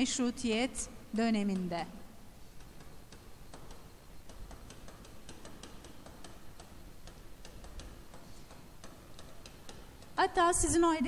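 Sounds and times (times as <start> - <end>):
stylus tapping on tablet: 2.6 - 10.4.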